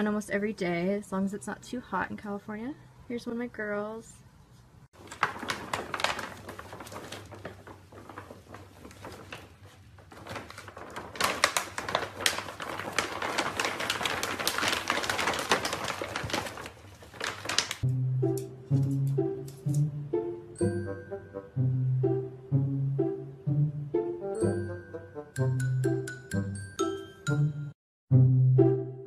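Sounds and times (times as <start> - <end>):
bag crinkling and rustling: 5.0 - 17.9.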